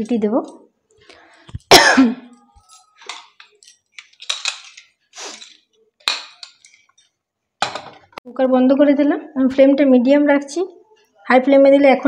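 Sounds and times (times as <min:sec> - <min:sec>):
metal clinks and scrapes: 0:02.3 - 0:07.2.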